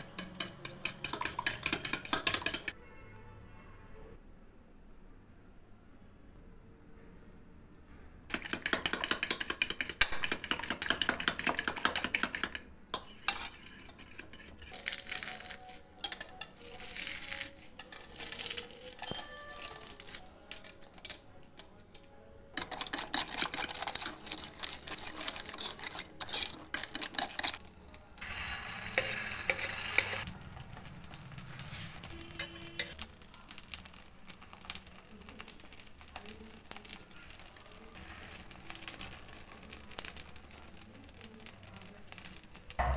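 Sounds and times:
utensils clattering: 0.0 - 2.7, 13.0 - 21.2, 22.6 - 30.3
spoon beating egg in steel bowl: 0.0 - 2.8, 8.3 - 21.7, 22.6 - 41.3
food sizzling in frying pan: 25.1 - 42.9.

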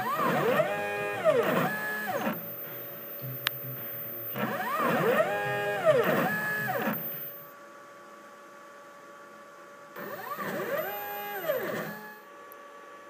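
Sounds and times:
stepper motor whine: 0.0 - 7.5, 10.0 - 12.3.

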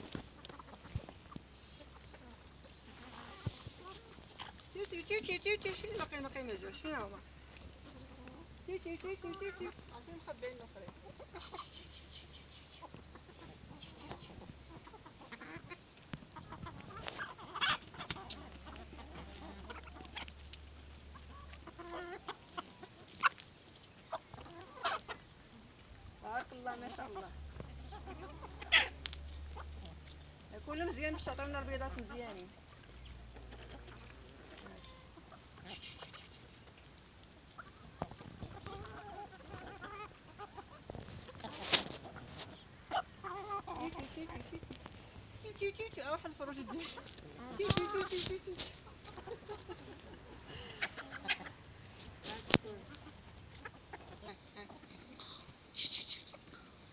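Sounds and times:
hens clucking: 0.0 - 56.9.

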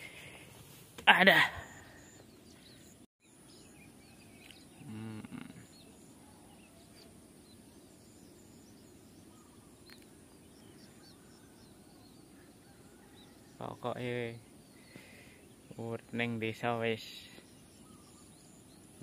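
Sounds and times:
faint bird chirps: 1.1 - 19.0
steady high-pitched hum: 1.5 - 19.0
low voice-like sound: 4.8 - 5.6.

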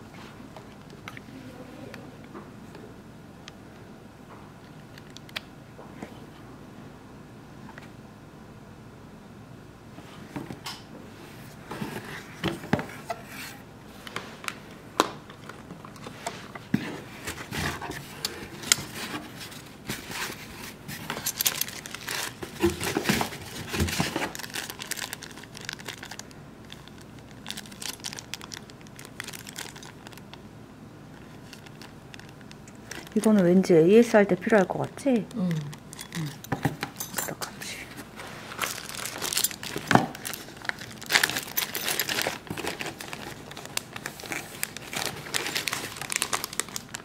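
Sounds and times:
plastic packaging crinkling: 17.2 - 30.4, 31.1 - 33.7, 38.0 - 47.0.

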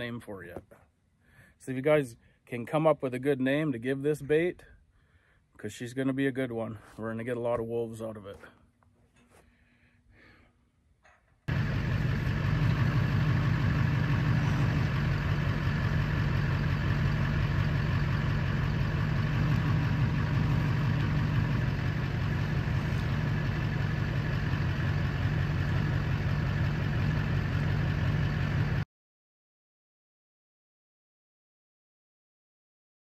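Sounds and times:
engine idling: 11.5 - 28.8.

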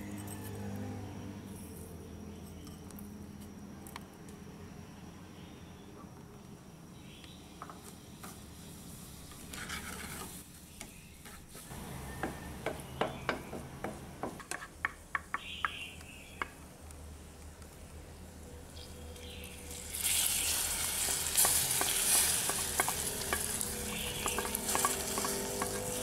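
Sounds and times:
soft sizzle: 16.9 - 26.0
caramel bubbling in a pan: 19.5 - 26.0
spatula scraping and knocking pan: 21.0 - 26.0.

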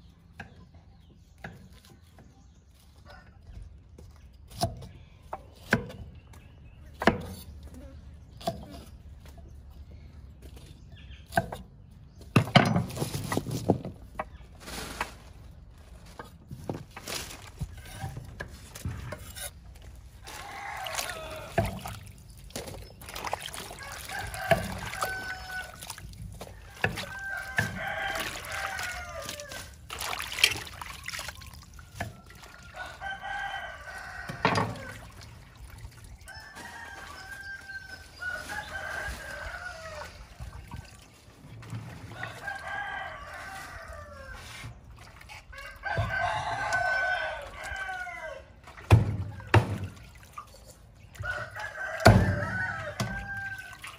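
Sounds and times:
roosters crowing: 20.2 - 22.1, 23.5 - 29.8, 31.8 - 35.2, 36.2 - 40.4, 42.0 - 44.7, 45.5 - 48.6, 51.2 - 53.9.

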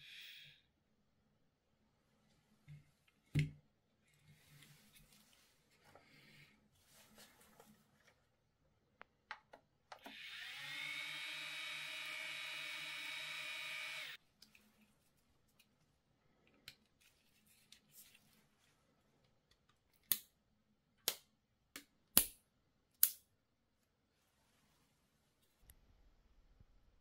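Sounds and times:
small drone motors whining: 10.1 - 14.2.

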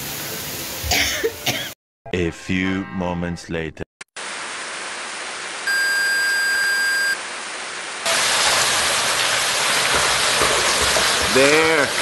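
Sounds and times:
steady electronic beep: 5.7 - 7.2.

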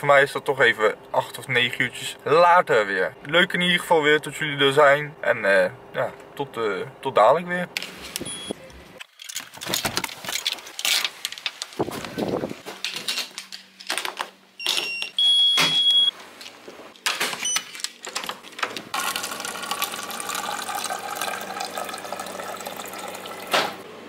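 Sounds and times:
electronic beep: 8.3 - 8.6, 14.6 - 16.1
water running into paper cup: 19.0 - 23.8.

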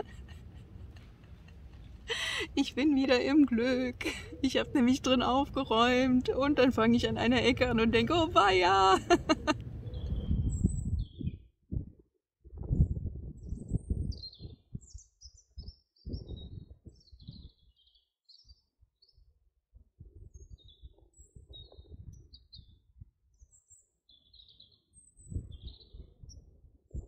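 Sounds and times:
songbirds chirping: 0.0 - 11.4, 13.6 - 19.3, 23.4 - 26.4
low rumble on microphone: 5.5 - 17.8, 19.7 - 23.2, 25.2 - 27.0.

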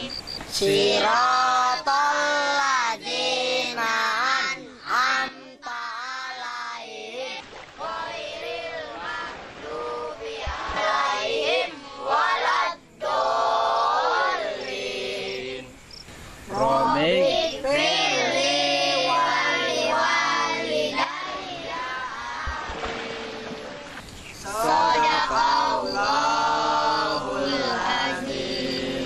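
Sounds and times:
children singing in unison: 0.0 - 29.0.

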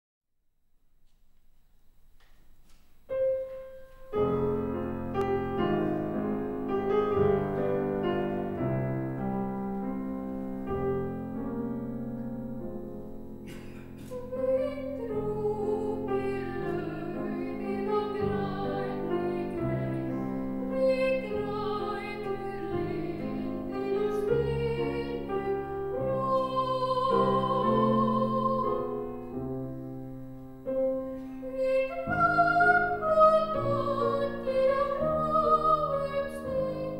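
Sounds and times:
grand piano chords: 1.8 - 36.9
soprano singing with vibrato: 14.0 - 29.3, 31.4 - 36.9.

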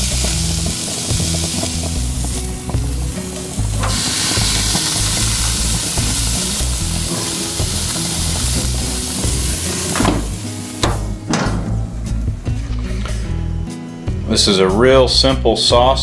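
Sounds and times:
meat sizzling on a grill: 0.0 - 11.3
background music with bass line: 0.0 - 16.0.

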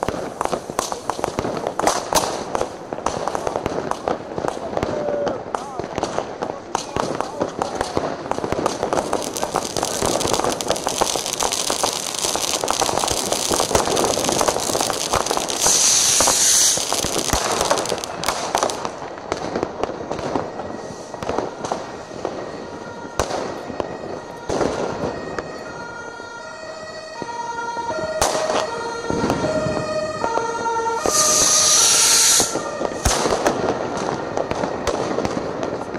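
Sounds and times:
fireworks crackling and banging: 0.0 - 35.9
loud hiss: 15.5 - 17.2, 31.1 - 32.6.

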